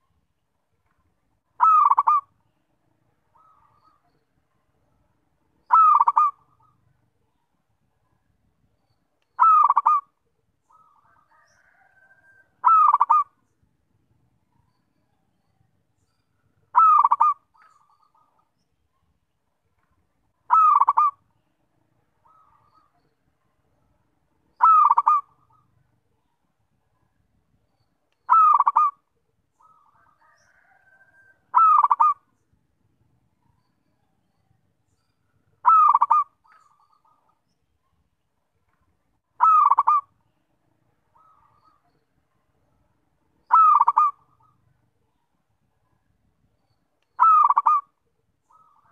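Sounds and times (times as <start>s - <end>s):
dove cooing: 1.6s - 2.3s, 5.7s - 6.8s, 9.4s - 10.1s, 10.7s - 13.4s, 16.7s - 18.3s, 20.5s - 21.2s, 24.6s - 25.8s, 28.3s - 29.0s, 29.6s - 32.3s, 35.6s - 37.2s, 39.4s - 40.1s, 43.4s - 44.6s, 47.2s - 47.9s.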